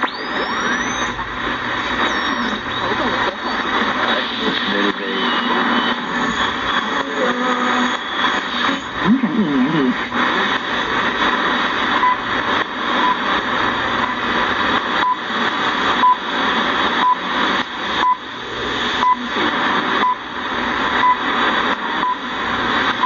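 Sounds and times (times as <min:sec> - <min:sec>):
radio static hiss: 0:00.0 - 0:23.0.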